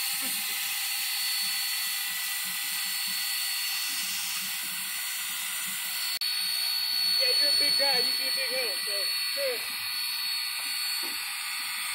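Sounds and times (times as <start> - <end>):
steam locomotive hissing: 2.7 - 11.9
thin high whistle-like tone: 7.0 - 9.7.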